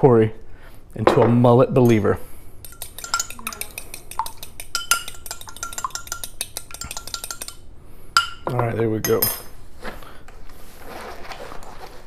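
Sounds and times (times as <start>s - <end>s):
fork clinking against bowl: 2.6s - 7.6s, 8.2s - 8.5s.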